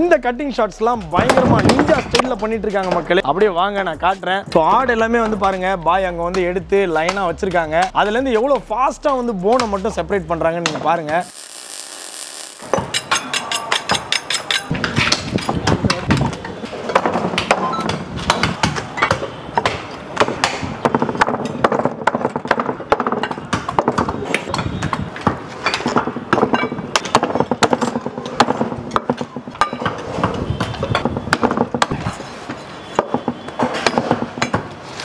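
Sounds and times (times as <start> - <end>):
background music: 0.0 - 11.2.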